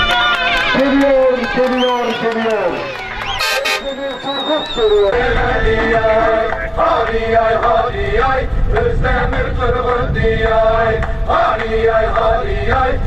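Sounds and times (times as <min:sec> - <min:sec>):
man singing chant-like: 0:03.7 - 0:13.0.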